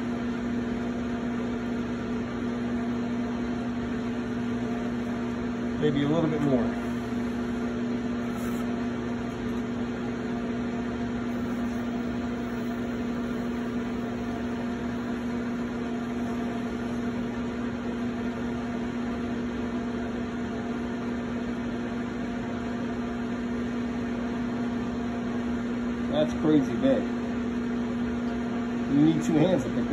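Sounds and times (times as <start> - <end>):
potter's wheel motor hum: 0.0 - 29.9.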